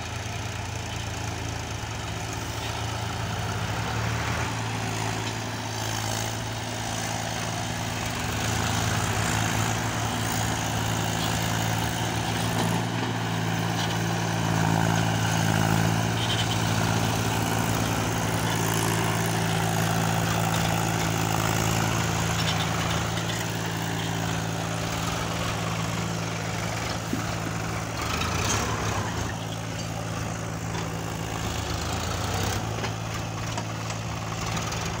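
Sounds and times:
tractor diesel engine under load: 0:00.0 - 0:35.0.

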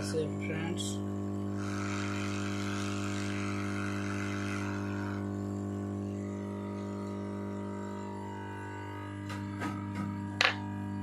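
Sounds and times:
steady electrical hum: 0:00.0 - 0:11.0
hot air gun blowing: 0:01.5 - 0:05.7.

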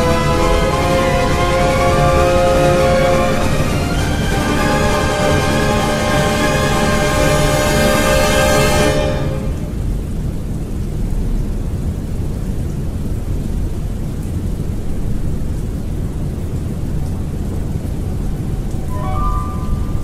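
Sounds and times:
rain pattering: 0:00.0 - 0:20.0
low thunder rumble: 0:09.4 - 0:20.0.

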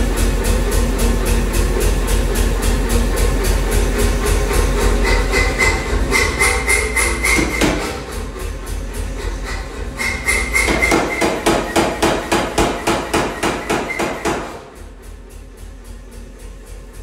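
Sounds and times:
machine low hum: 0:00.0 - 0:17.0
power hammer blows on steel: 0:10.0 - 0:14.7.

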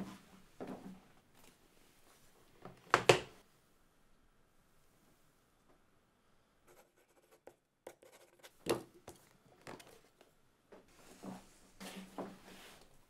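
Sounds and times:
scratching and rubbing on paper: 0:06.7 - 0:08.6.

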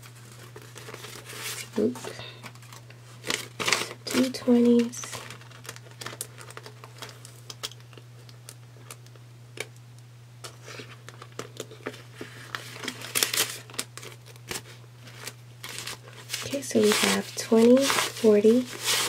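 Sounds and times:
paper banknotes rustling: 0:00.0 - 0:07.2, 0:11.1 - 0:19.0
plastic pouch crinkling: 0:00.1 - 0:09.2, 0:10.4 - 0:19.0.

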